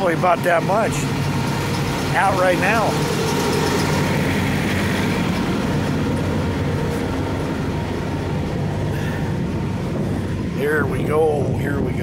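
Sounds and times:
steady low rumble: 0.0 - 12.0
wind on microphone: 4.1 - 12.0.

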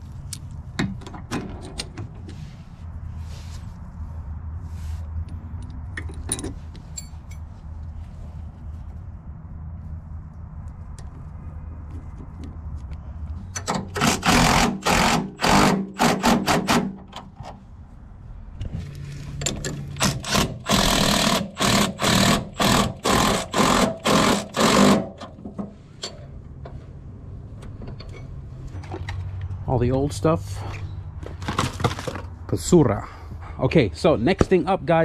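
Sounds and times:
cordless impact wrench bursts: 13.9 - 17.0, 20.0 - 25.2.

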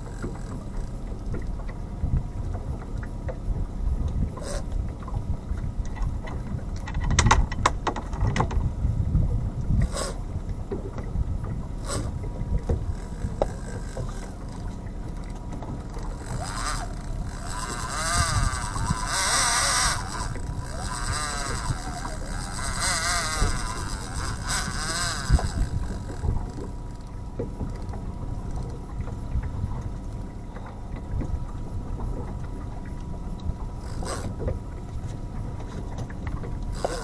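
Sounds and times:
fishing reel raspy whirring: 0.0 - 1.5, 4.4 - 4.8, 9.8 - 10.4, 11.8 - 28.9, 33.5 - 34.5, 36.6 - 37.0
boat engine low rumble: 0.0 - 37.0.

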